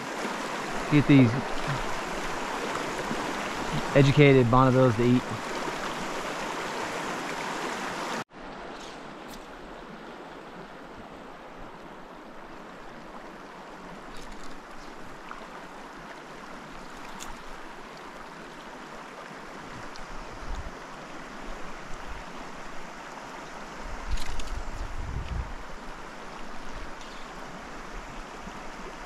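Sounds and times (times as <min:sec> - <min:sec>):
creek water flowing over gravel: 0:00.0 - 0:29.0
wind gusts on microphone: 0:23.8 - 0:26.0.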